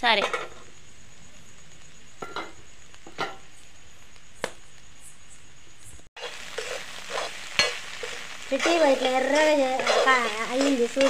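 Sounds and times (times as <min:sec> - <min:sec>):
fish roe sizzling in oil: 0:00.5 - 0:05.1, 0:06.0 - 0:11.0.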